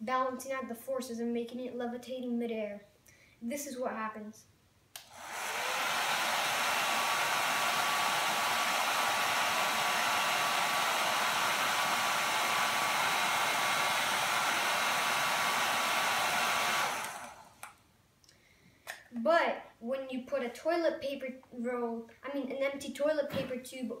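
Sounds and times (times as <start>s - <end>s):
hair dryer blowing: 5.0s - 17.7s.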